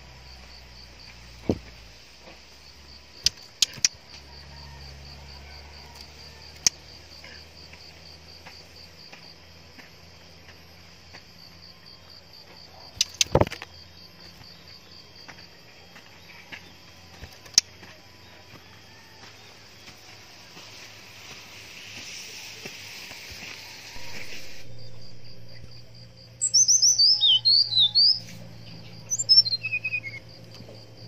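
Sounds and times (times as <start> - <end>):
insect trill: 0.0 - 31.0
sharp clicks: 3.2 - 4.0, 13.0 - 13.6.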